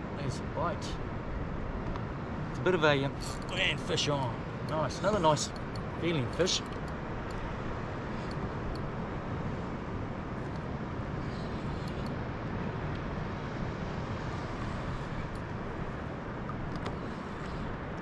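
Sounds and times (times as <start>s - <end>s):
faint clicks: 11.8s - 12.2s.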